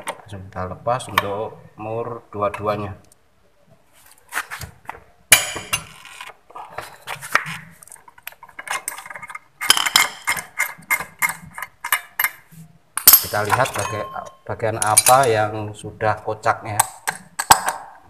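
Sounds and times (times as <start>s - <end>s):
sharp metal clank: 13.0s - 15.4s.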